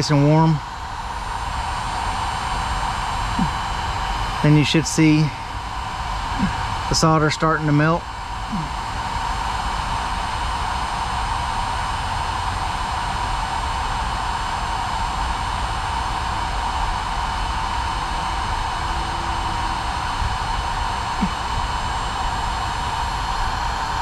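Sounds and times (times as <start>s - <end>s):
heat gun fan whine: 0.0s - 24.0s.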